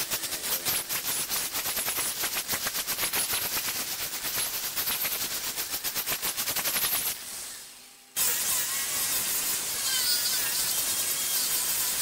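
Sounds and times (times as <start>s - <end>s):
faint high squeal: 7.4s - 12.0s.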